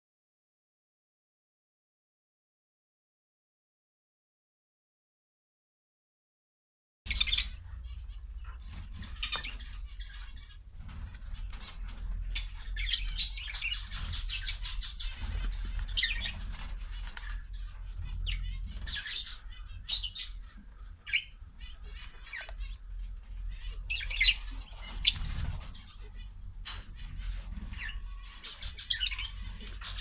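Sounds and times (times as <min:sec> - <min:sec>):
quail chirping calls: 0:07.1 - 0:30.0.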